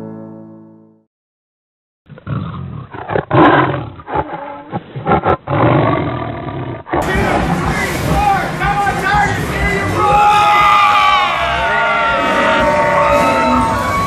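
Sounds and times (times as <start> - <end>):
tiger roaring and growling: 2.1 - 7.7.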